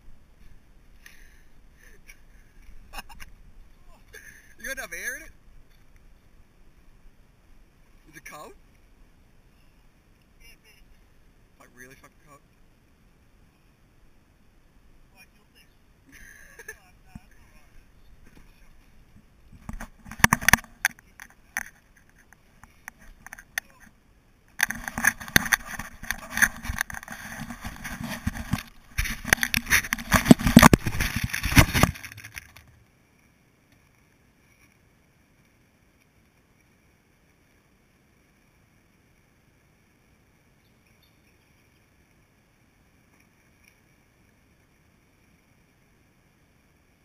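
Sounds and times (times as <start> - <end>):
fingers rubbing on camera: 19.6 - 23.9, 24.6 - 32.6.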